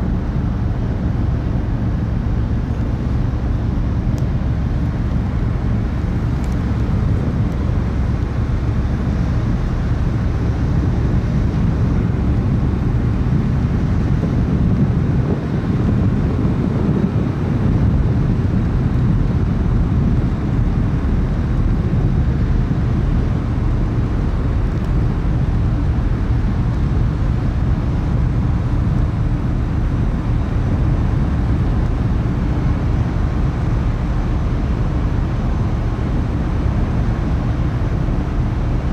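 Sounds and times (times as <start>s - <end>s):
ship engines droning: 0.0s - 38.9s.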